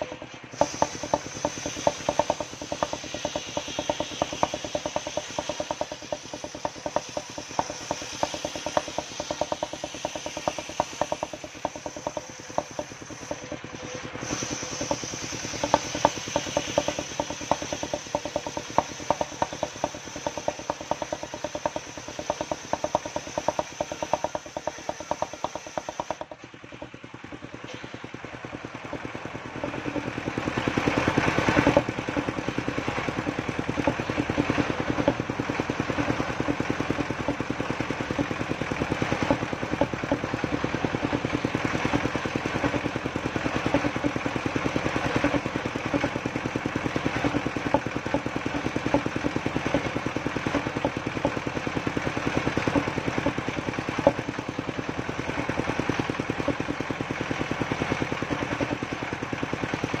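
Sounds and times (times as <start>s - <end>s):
circular saw engine running: 0.0s - 60.0s.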